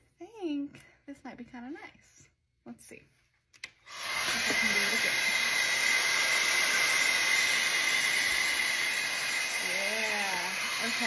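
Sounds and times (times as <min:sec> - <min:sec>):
hair dryer air rush and whine: 0:03.9 - 0:11.0.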